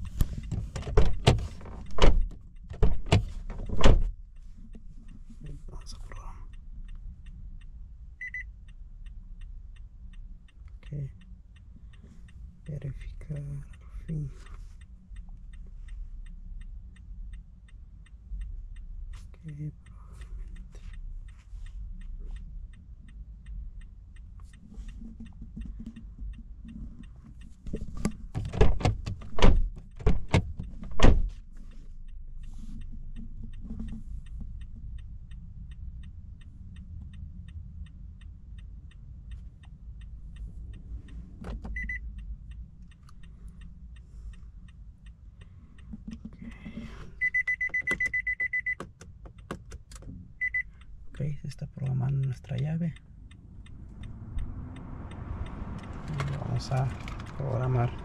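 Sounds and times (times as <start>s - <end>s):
high electronic beeps: 47.2s - 48.8s, 50.4s - 50.7s.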